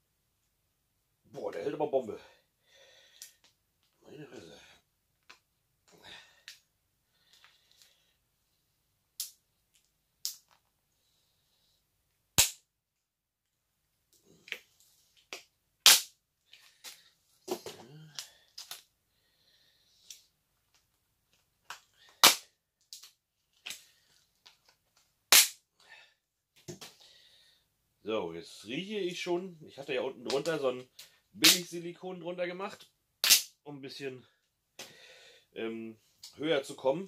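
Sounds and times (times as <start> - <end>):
plastic cup cracking: 33.2 - 33.5.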